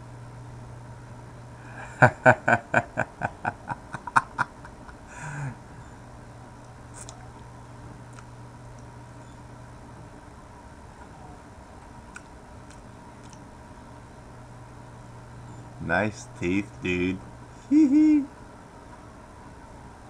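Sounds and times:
low electrical hum: 0.0 - 20.0
man laughing: 1.7 - 5.6, 17.6 - 18.3
breathy sigh: 5.0 - 5.8.

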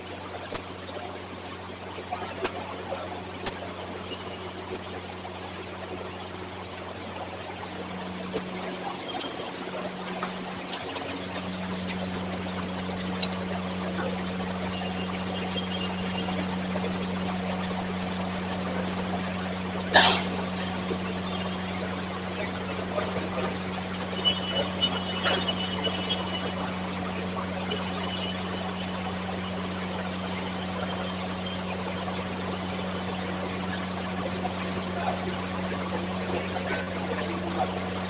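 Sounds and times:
low electrical hum: 0.0 - 38.0.

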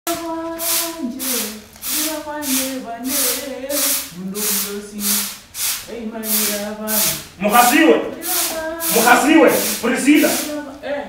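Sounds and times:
broom sweeping paving stones: 0.1 - 10.6
person singing long notes: 8.2 - 9.2.

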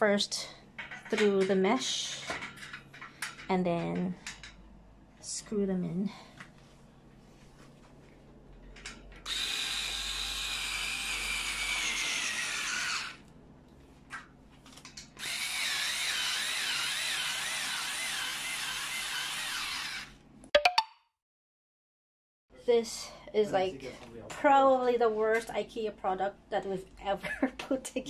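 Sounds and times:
cordless drill whine: 9.2 - 13.2, 15.2 - 20.2.

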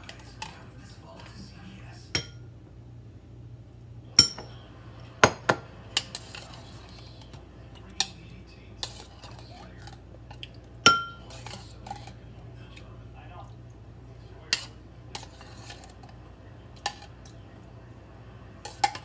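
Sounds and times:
utensil clinking against dishes: 2.1 - 2.5, 4.2 - 4.6, 5.2 - 12.8, 14.4 - 17.4, 18.6 - 19.0.

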